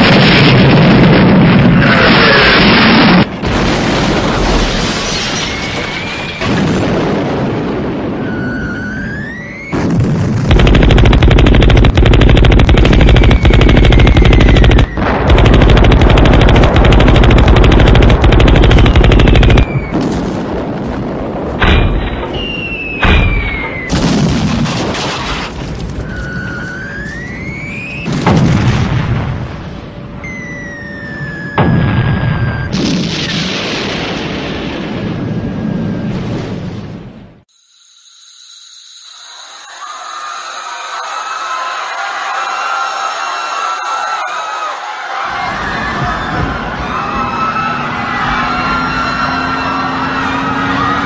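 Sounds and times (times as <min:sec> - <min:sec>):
explosion booms: 0:00.0 - 0:08.7, 0:09.7 - 0:26.1, 0:28.0 - 0:29.9, 0:31.6 - 0:37.4
whistling shells: 0:05.2 - 0:06.6, 0:08.1 - 0:10.0, 0:12.5 - 0:15.6, 0:17.8 - 0:20.1, 0:21.7 - 0:24.0, 0:26.0 - 0:28.2, 0:30.2 - 0:32.8, 0:37.5 - 0:45.0
rapid gunfire: 0:10.2 - 0:19.8.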